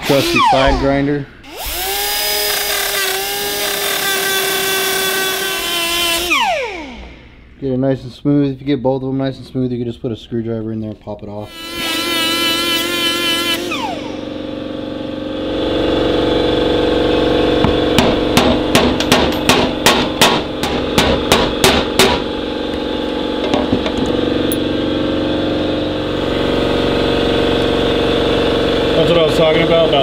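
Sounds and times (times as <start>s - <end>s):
steady hum: 0.0s - 3.6s, 13.6s - 30.0s
angle grinder winding down: 0.0s - 7.2s, 11.5s - 14.8s.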